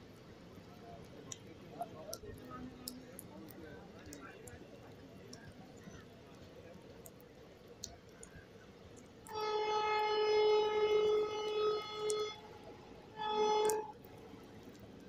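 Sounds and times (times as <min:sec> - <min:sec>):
locomotive horn blasts: 0:09.3 - 0:14.0.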